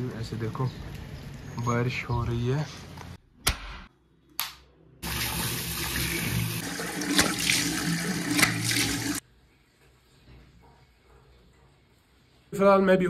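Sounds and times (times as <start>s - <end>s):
hands splashing water: 6.7s - 9.2s.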